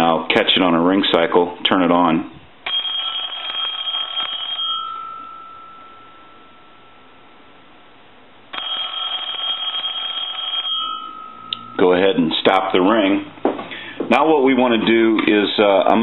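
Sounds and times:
telephone bell ringing: 2.7s - 7.2s, 8.5s - 11.8s.

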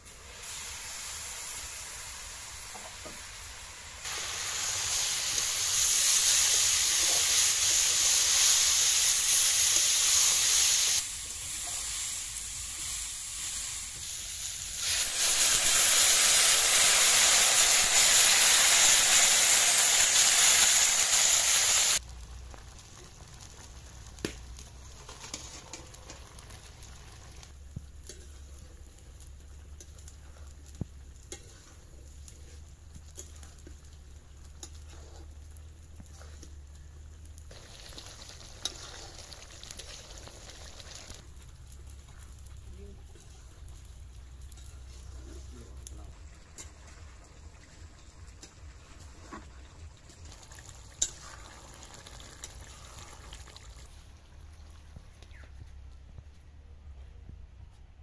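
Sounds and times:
hot oil sizzling: 0.0s - 55.8s.

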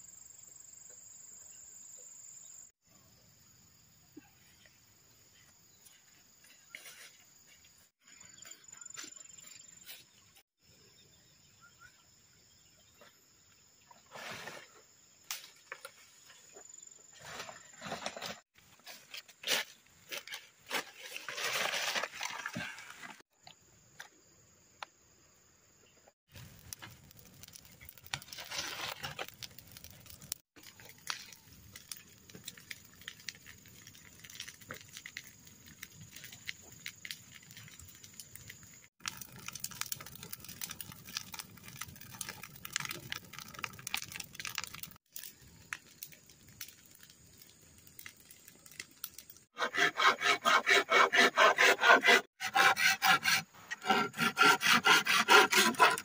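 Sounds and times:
insects chirring: 0.0s - 18.1s, 23.3s - 49.5s
dry brush rustling and crackling: 17.3s - 23.2s, 26.3s - 38.4s.

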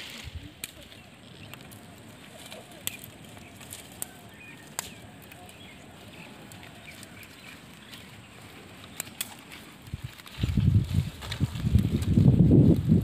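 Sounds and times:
twigs snapping: 0.0s - 12.9s
rustle of branches: 0.0s - 13.0s
bird chirps: 2.6s - 9.2s.

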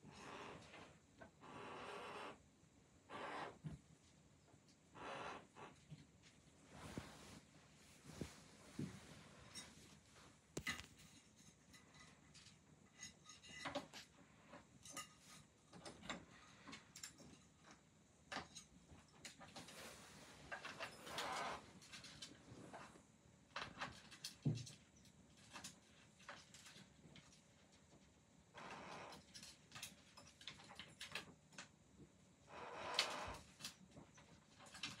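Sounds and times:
short rustles: 6.6s - 11.3s.

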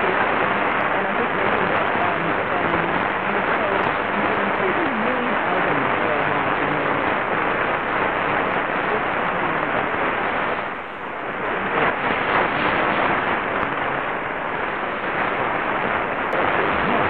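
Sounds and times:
faint radio voice: 0.0s - 7.7s, 8.3s - 10.0s, 11.3s - 14.3s, 16.4s - 17.0s
radio static and hiss: 0.0s - 17.0s.

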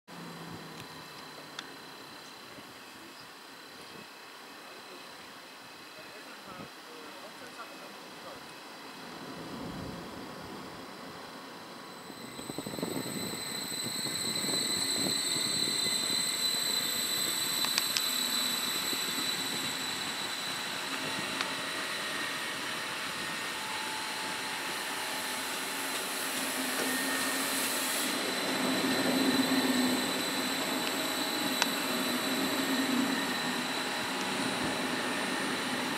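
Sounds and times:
electric train whine: 0.1s - 35.9s
train wheels rolling: 8.9s - 35.9s
wheels clicking on track: 12.2s - 19.9s.

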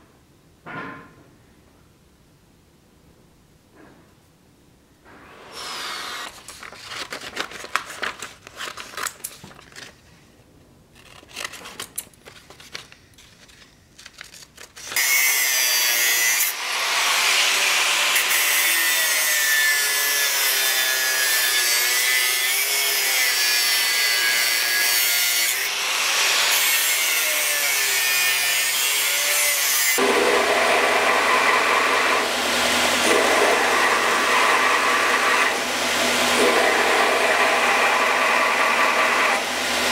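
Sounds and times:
paper rustling: 6.2s - 10.3s, 10.9s - 15.0s
cutting disc cutting steel: 15.0s - 39.9s
belt grinder humming: 21.4s - 39.9s.

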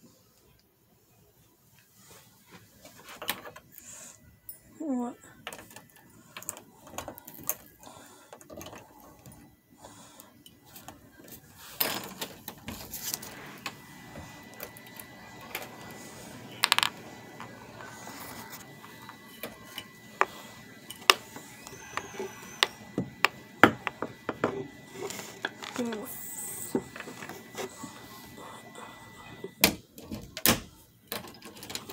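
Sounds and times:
small objects handled by hand: 5.4s - 28.0s.

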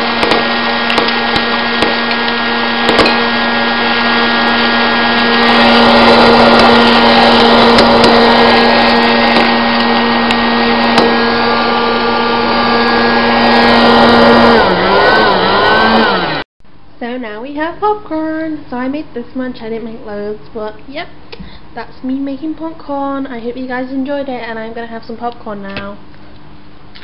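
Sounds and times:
popcorn machine motor hum: 0.0s - 16.4s.

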